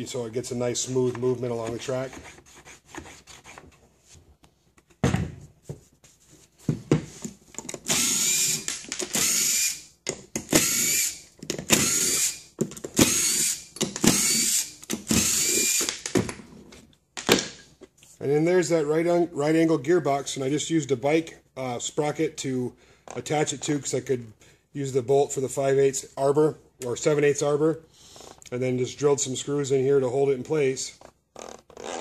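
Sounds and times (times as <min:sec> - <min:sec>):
cordless drill bursts: 0:07.9 - 0:09.9, 0:10.5 - 0:15.9.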